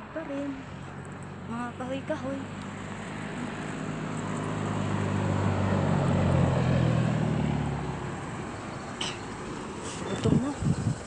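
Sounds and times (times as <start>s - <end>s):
passing vehicle engine hum: 0.0s - 11.0s.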